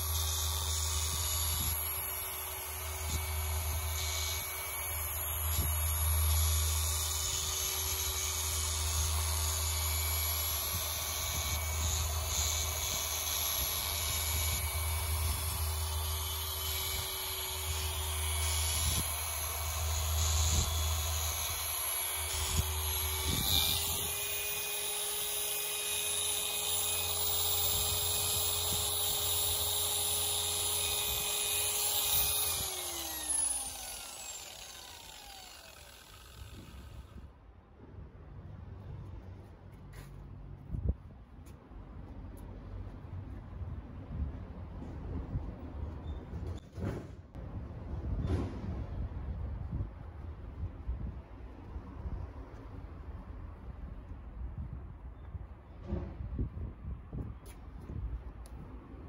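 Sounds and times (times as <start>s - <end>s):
orbital polisher motor whine: 0.0s - 37.2s
polisher winding down: 26.7s - 37.1s.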